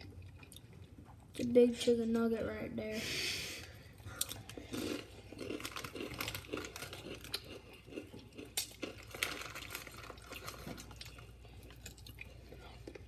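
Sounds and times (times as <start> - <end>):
wet chewing and smacking: 0.0 - 1.5, 4.0 - 13.0
low steady hum: 0.0 - 13.0
snack bag crinkling: 4.1 - 13.0.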